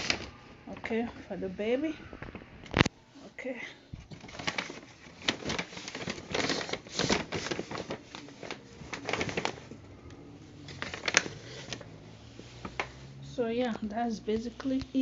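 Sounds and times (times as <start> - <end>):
shopping bags rustling: 0.0 - 1.8, 4.0 - 9.9, 10.5 - 15.0.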